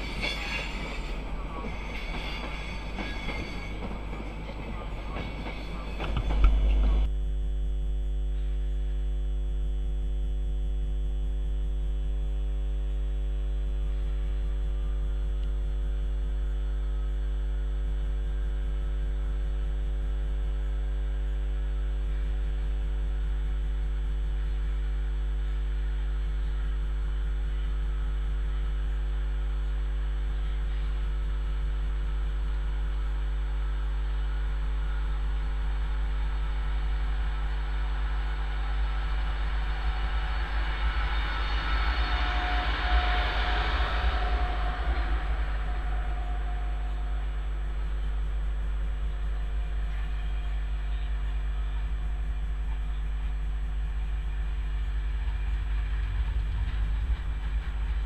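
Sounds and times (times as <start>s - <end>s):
electric train rushing: 0.0s - 7.1s, 34.1s - 52.4s, 54.0s - 58.0s.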